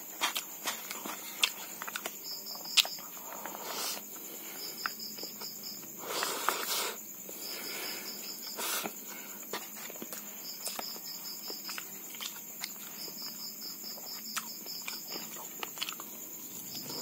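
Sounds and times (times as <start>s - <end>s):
crickets chirping: 0.0s - 17.0s
person chewing: 0.2s - 7.0s, 8.4s - 17.0s.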